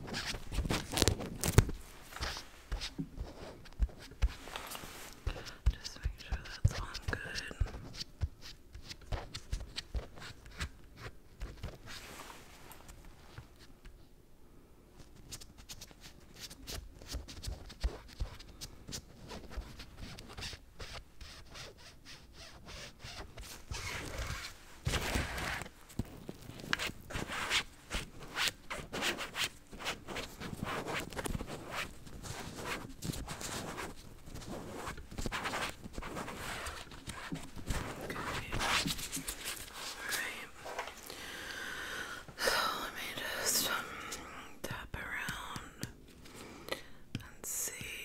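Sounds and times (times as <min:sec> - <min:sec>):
scratchy rubbing: 0:15.2 - 0:40.9.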